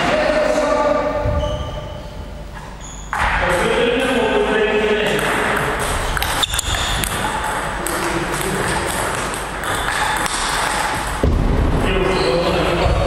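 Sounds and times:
steady background noise: 0.0 - 13.0
table tennis ball hit by bats: 5.0 - 11.9
ball bouncing on table: 5.1 - 11.6.

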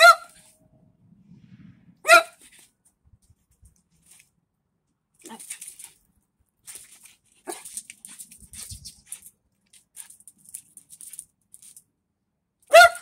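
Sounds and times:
dog yipping: 0.0 - 0.5, 2.0 - 2.6, 7.4 - 7.8, 12.7 - 13.0.

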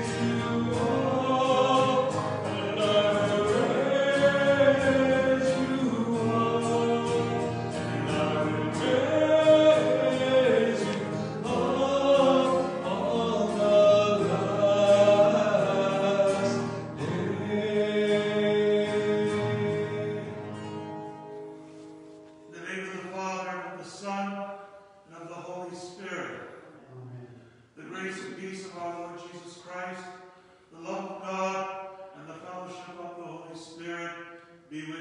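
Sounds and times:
choir singing a slow hymn: 0.0 - 21.0.

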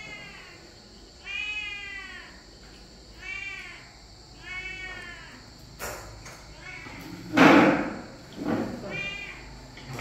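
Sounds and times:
cat meowing: 0.0 - 0.6, 1.2 - 2.4, 3.2 - 5.4, 6.5 - 7.2, 8.8 - 9.5.

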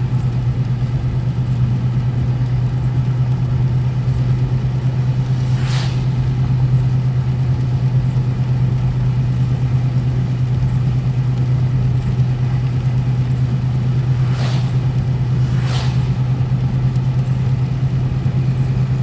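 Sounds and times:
engine and tyres on wet road: 0.0 - 19.0
windshield wipers swishing: 10.4 - 18.9.

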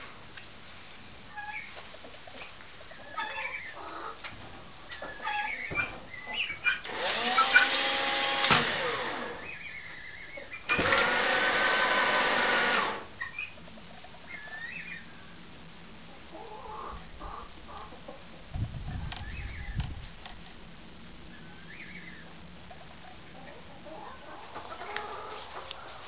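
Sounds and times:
drill motor whirring: 6.8 - 9.5, 10.7 - 13.1.

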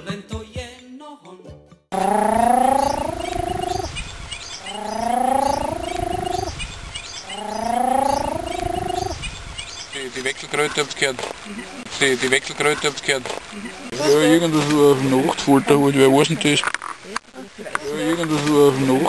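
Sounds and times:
toad trilling: 2.0 - 9.8.

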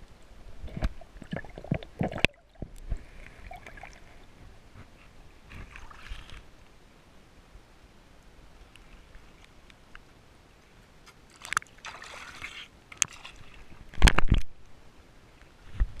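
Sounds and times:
water sloshing and splashing: 0.5 - 6.7, 11.2 - 14.4.

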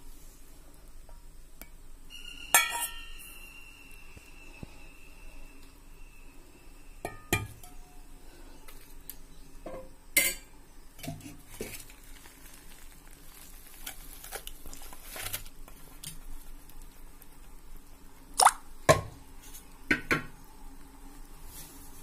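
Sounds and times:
bowl scraping: 2.1 - 5.5
metal bowl clinking: 2.5 - 3.3.

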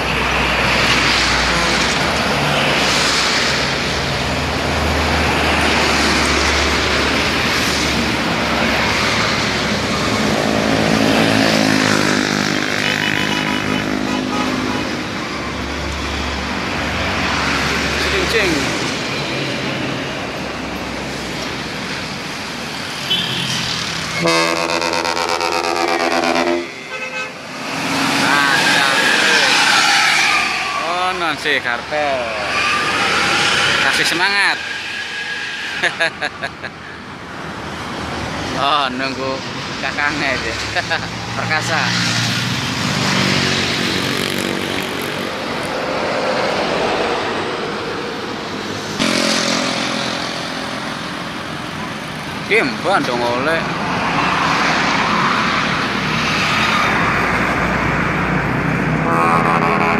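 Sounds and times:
road traffic: 0.0 - 59.9
bus multi-tone air horn: 1.5 - 2.0, 24.2 - 27.4, 59.0 - 59.9.

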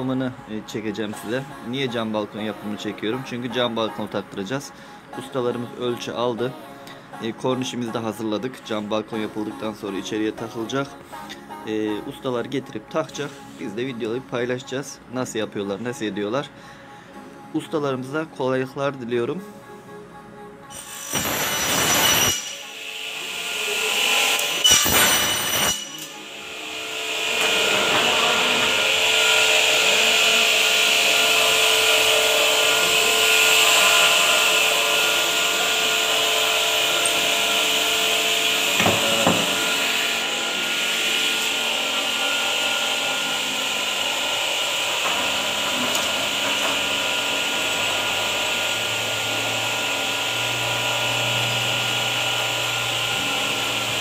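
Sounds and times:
machinery high whine: 19.6 - 54.0
saw cutting through aluminium: 20.7 - 54.0
single knock: 38.8 - 39.6.

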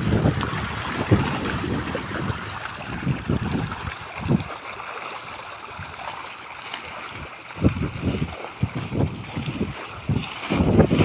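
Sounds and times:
wind buffeting microphone: 0.0 - 4.6, 7.0 - 11.0.

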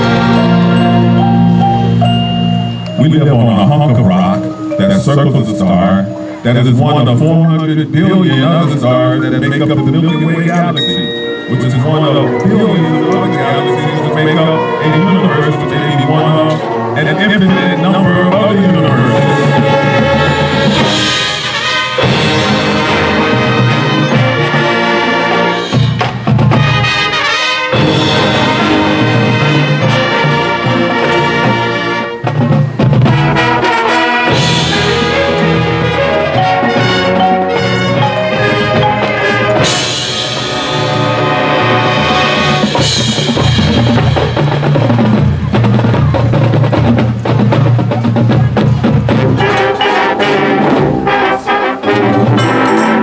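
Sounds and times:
brass sustained chords: 0.0 - 32.3, 33.0 - 45.6, 49.2 - 53.0
drumline and bass drums: 0.0 - 53.0
marching percussion: 0.0 - 53.0.

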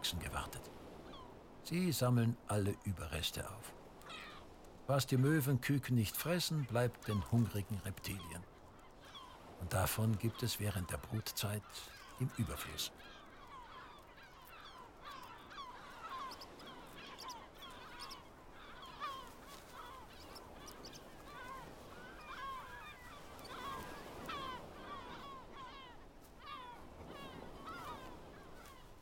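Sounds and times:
gull colony calling: 7.0 - 29.0.

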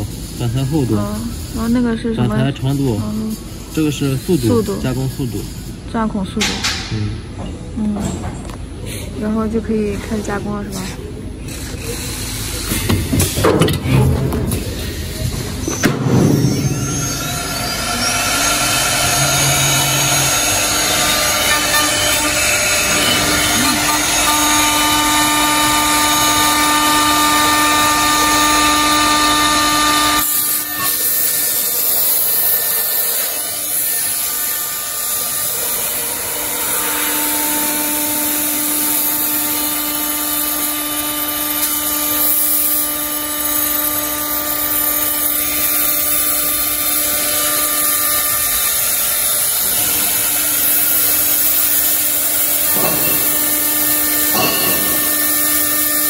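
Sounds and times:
woodworking machine cutting wood: 11.6 - 56.0
dust extraction running: 14.0 - 56.0.

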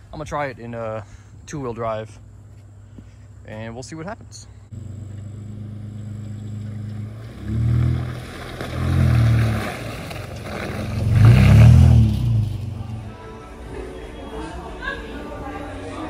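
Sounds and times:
pickup truck engine revving: 4.7 - 13.2.

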